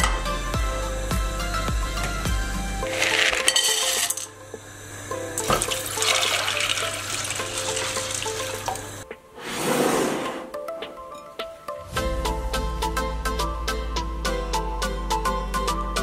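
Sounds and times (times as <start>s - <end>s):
beans clattering in metal pot: 2.8s - 4.3s, 5.4s - 8.9s
water pouring onto beans: 2.9s - 4.3s, 5.4s - 9.0s.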